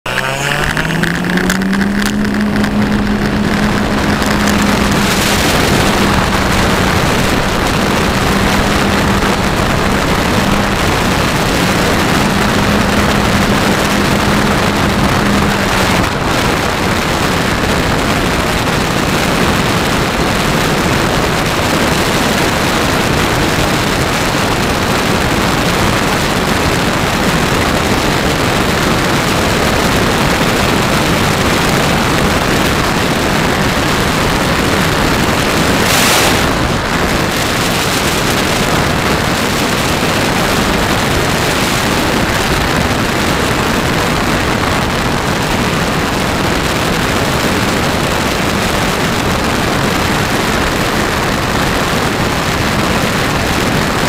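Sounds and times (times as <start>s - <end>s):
propeller motor humming: 0.0s - 18.8s
wind rush over microphone: 0.0s - 54.0s.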